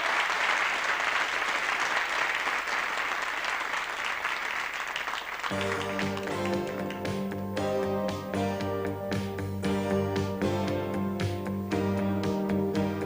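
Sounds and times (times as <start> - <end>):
studio audience applauding: 0.0 - 8.4
instrumental music: 5.5 - 13.0.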